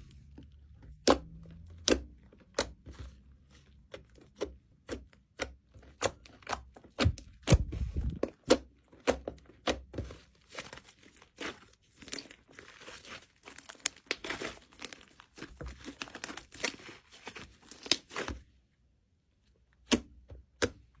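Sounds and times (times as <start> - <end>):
slime crackling and popping: 10.4 - 18.4.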